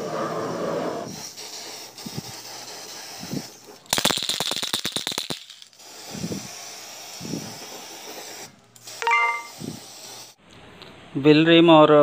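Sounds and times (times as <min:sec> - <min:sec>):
spray paint hissing: 0:01.0 - 0:10.4
spray can ball rattling: 0:01.3 - 0:10.4.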